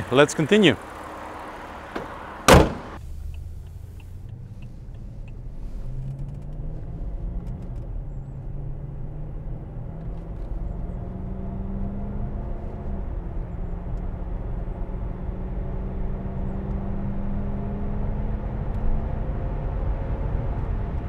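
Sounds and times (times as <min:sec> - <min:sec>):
car engine accelerating: 0:00.0 - 0:21.0
car hood slamming shut: 0:01.9 - 0:03.0.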